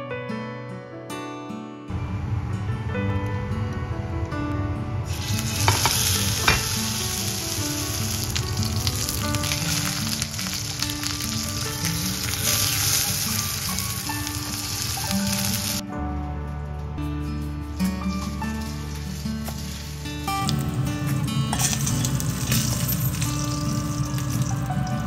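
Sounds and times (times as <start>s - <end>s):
meat sizzling in hot oil: 5.1s - 15.8s, 18.1s - 20.8s, 21.5s - 25.0s.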